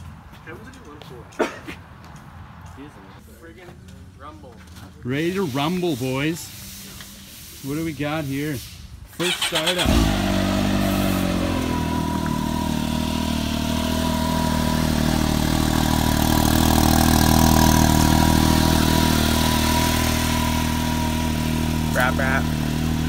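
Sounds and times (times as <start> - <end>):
engine idling: 9.2 - 23.0.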